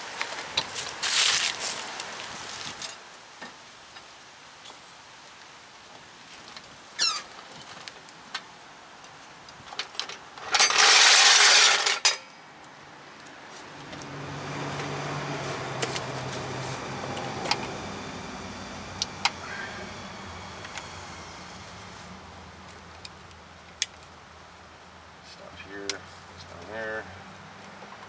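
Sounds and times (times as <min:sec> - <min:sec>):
metal tools clinking: 0:09.8 - 0:12.3
vehicle engine hum: 0:12.6 - 0:28.0
loud hiss: 0:15.5 - 0:22.8.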